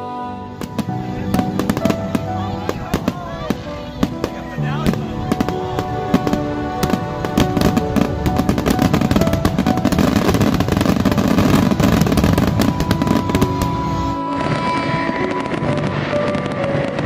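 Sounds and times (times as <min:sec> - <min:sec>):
music playing: 0:00.0 - 0:17.0
fireworks crackling and popping: 0:00.4 - 0:17.0.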